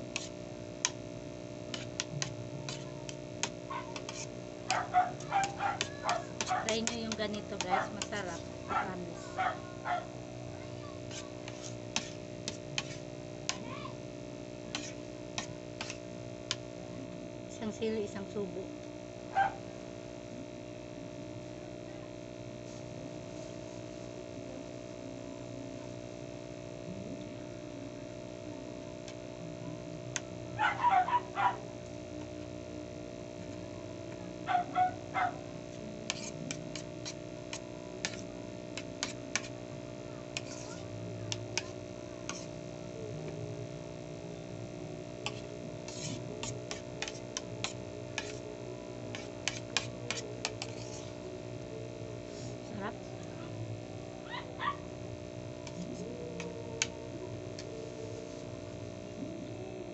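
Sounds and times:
steady hum: 0.0s - 59.9s
spoon scraping ceramic plate: 1.7s - 8.5s, 11.1s - 13.6s, 14.7s - 16.0s, 36.1s - 39.6s, 40.4s - 40.9s, 41.5s - 42.6s, 45.2s - 48.5s, 49.1s - 51.2s, 55.6s - 56.9s.

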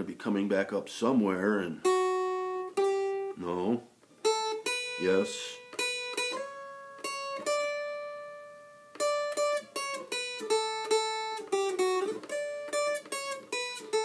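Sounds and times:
dulcimer picked melody: 1.8s - 3.4s, 4.2s - 14.0s.

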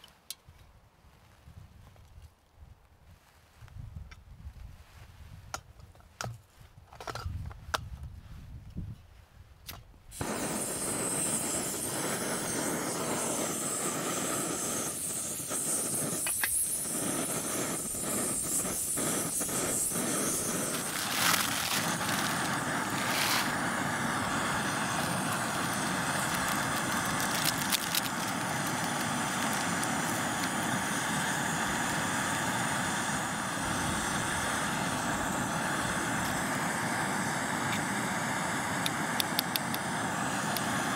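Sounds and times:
stove burner hissing: 10.1s - 40.9s.

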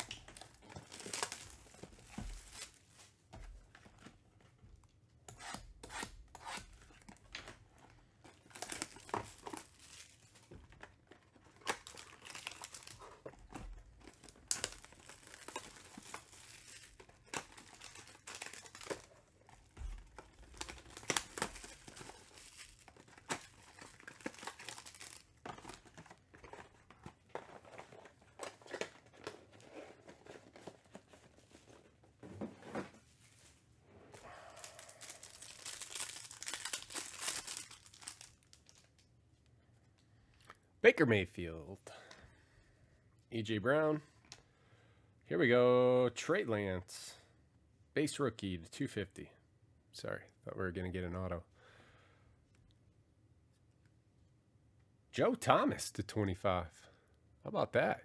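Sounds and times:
wrappers torn and crinkled: 0.0s - 3.1s, 8.3s - 10.5s, 11.1s - 29.8s, 34.2s - 39.1s.

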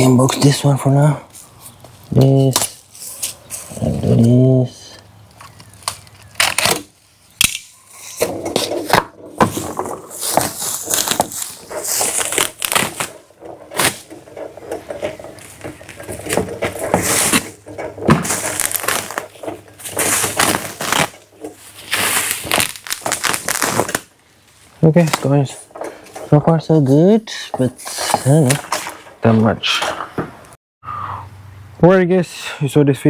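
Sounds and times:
cart knocks and clanks: 8.2s - 21.9s, 25.0s - 30.4s
bubble wrap crinkling: 9.5s - 25.3s.

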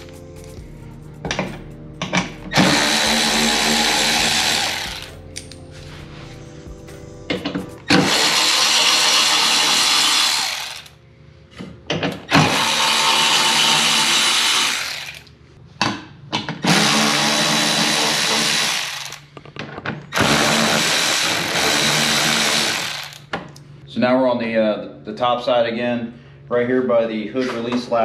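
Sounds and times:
electric ratchet running: 2.5s - 5.2s, 7.9s - 11.0s, 12.3s - 15.3s, 16.6s - 19.2s, 20.2s - 23.3s.

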